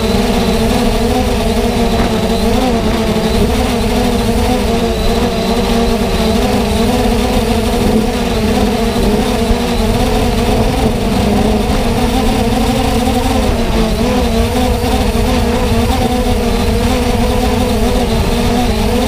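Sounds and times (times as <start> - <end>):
drone motors humming: 0.0 - 19.0
low rumble: 9.0 - 14.5.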